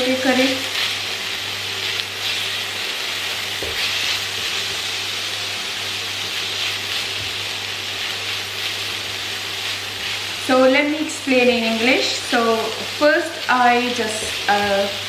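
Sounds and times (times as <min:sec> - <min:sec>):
onion sizzling in a frying pan: 0:00.0 - 0:15.0
spatula stirring in a pan: 0:00.6 - 0:05.0, 0:06.2 - 0:10.6.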